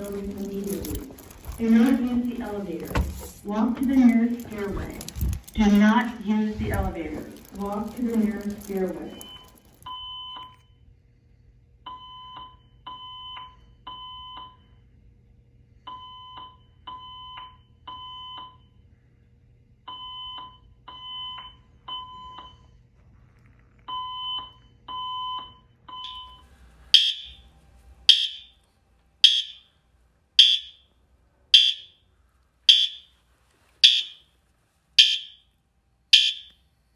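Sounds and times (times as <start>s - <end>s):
fire alarm beeps from speakers: 0.0s - 10.8s, 11.8s - 14.8s, 15.8s - 18.8s, 19.8s - 22.7s, 23.9s - 27.5s, 28.1s - 28.6s, 29.2s - 29.7s, 30.4s - 30.9s, 31.5s - 32.0s, 32.7s - 33.2s, 33.8s - 34.3s, 35.0s - 35.5s, 36.1s - 36.6s
alarm horn chirping: 26.0s - 28.6s, 29.2s - 29.7s, 30.4s - 30.9s, 31.5s - 32.0s, 32.7s - 33.2s, 33.8s - 34.2s, 35.0s - 35.5s, 36.1s - 36.6s.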